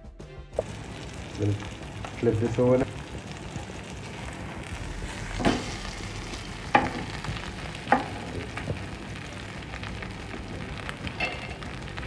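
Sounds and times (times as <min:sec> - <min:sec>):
fish sizzling in oil: 0:00.6 - 0:12.0
utensil knocking on pan: 0:05.3 - 0:05.8, 0:06.7 - 0:07.3, 0:07.9 - 0:08.8.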